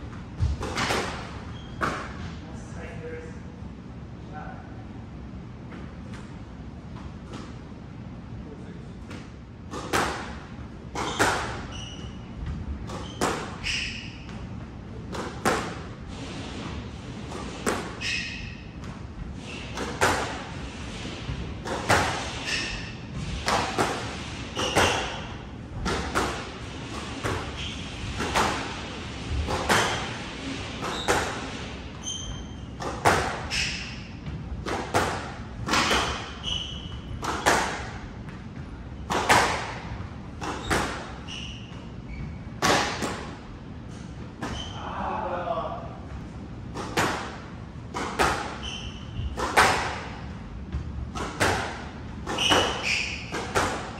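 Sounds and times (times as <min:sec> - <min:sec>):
squash ball hitting racket and walls: 0:00.0 - 0:02.7, 0:05.6 - 0:08.2, 0:09.0 - 0:53.9
shoes squeaking on hardwood floor: 0:01.5 - 0:02.0, 0:11.0 - 0:14.5, 0:18.0 - 0:18.8, 0:30.8 - 0:34.4, 0:35.7 - 0:37.6, 0:40.4 - 0:42.7, 0:44.4 - 0:44.9, 0:48.5 - 0:49.4, 0:52.3 - 0:53.7.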